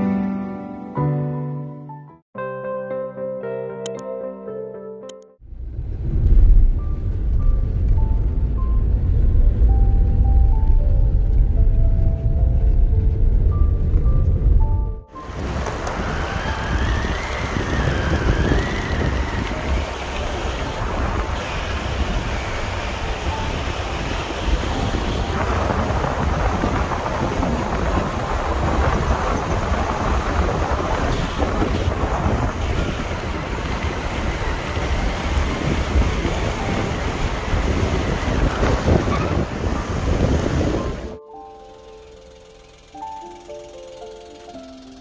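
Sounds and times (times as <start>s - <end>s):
wind buffeting microphone: 5.5s - 41.2s.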